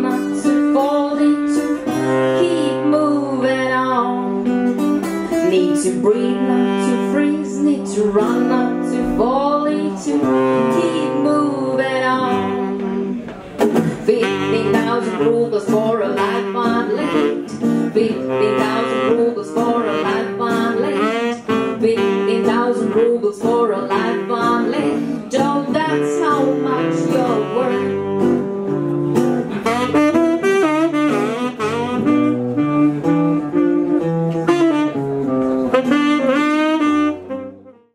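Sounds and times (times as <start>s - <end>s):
woman singing: 0.0s - 4.5s, 5.3s - 13.2s, 13.8s - 28.3s
saxophone melody: 0.0s - 13.3s, 14.0s - 37.9s
guitar chords: 0.0s - 37.9s.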